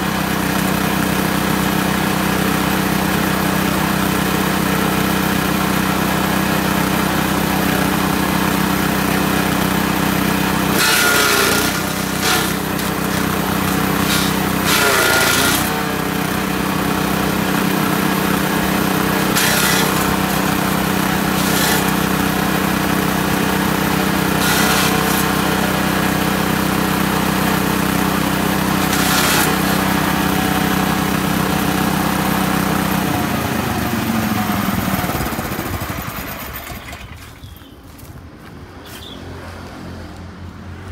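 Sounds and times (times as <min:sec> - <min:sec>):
small engine running: 0:00.0 - 0:37.7
branches being shredded: 0:10.4 - 0:16.8, 0:18.2 - 0:26.0, 0:28.6 - 0:30.2.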